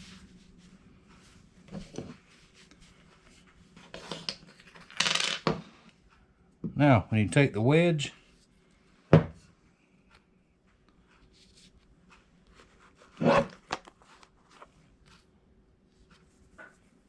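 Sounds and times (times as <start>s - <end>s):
faint clicks and rubs: 9.8s - 17.0s.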